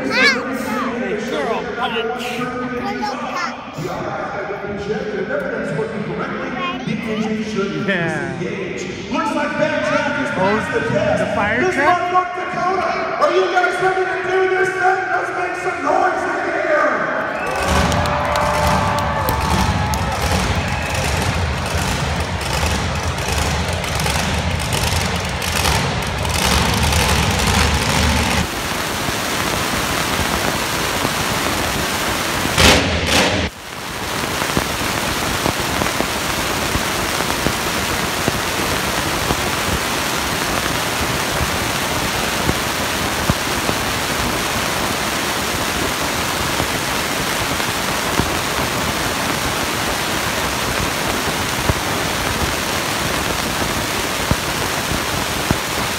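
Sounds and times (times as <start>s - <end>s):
monster truck engine roaring: 17.3s - 28.5s, 32.5s - 33.6s.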